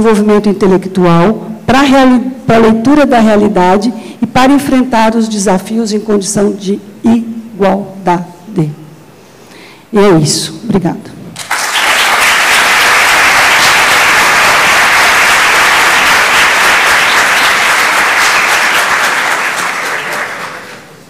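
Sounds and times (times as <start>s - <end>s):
audience applauding: 11.4s - 21.0s.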